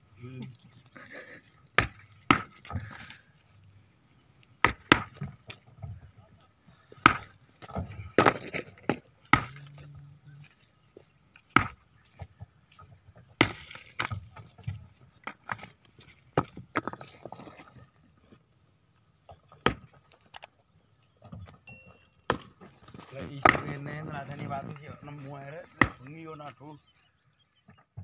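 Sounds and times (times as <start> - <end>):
sledgehammer striking rock: 1.8 - 3.1, 4.6 - 5.4, 7.0 - 9.7, 11.5 - 11.8, 13.4 - 14.2, 19.6 - 20.0, 22.3 - 22.6, 25.8 - 26.1.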